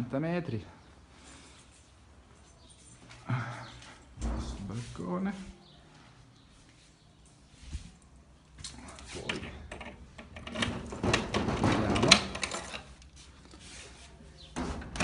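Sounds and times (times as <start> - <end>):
shutters rattling: 9.2 - 12.9.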